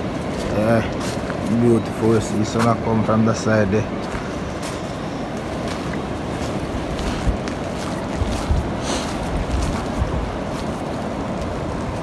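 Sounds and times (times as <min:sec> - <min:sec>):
wind noise on microphone: 0:03.9 - 0:12.0.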